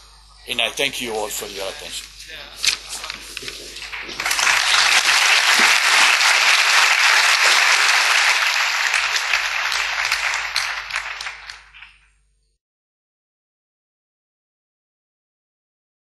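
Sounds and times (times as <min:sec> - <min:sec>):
audience applauding: 0:03.4 - 0:12.0.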